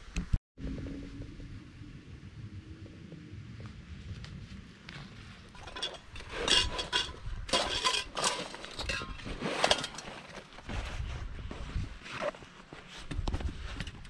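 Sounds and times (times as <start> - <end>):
metal cookware clinking: 5.6 - 10.3.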